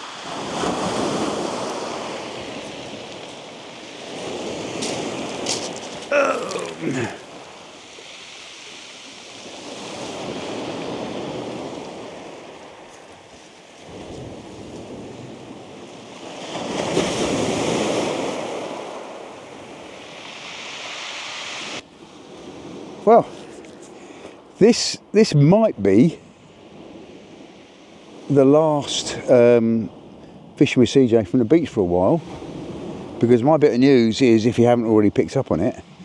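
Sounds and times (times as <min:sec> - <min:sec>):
waves breaking on shingle beach: 0:00.0 - 0:24.5.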